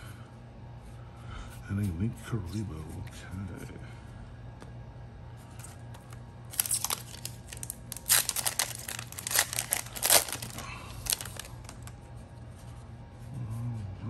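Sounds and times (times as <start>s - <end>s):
foil wrapper crinkling and tearing: 5.9s - 12.0s.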